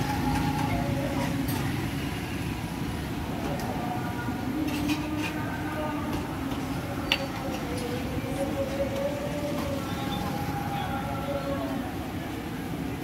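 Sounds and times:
faint indistinct voices: 3.3s - 13.0s.

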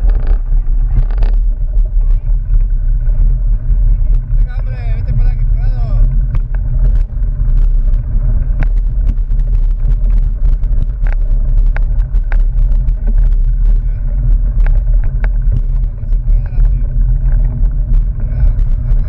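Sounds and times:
bike clicks and rattles: 0.0s - 19.0s
wind rumble on microphone: 0.0s - 19.0s.

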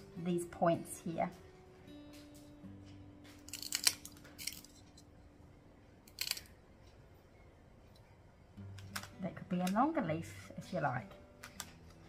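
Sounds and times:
glass nippers snapping glass: 3.4s - 4.8s, 6.1s - 6.5s.

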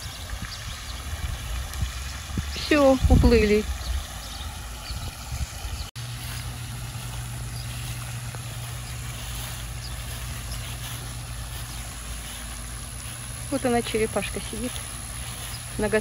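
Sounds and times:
steady low hum: 5.8s - 16.0s.

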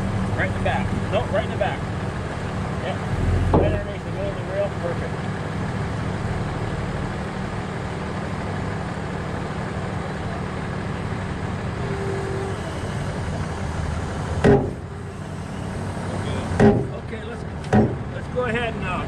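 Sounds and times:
vehicle engine idling: 0.0s - 19.0s
sharp knock: 14.4s - 14.8s, 16.6s - 16.9s, 17.7s - 18.0s.

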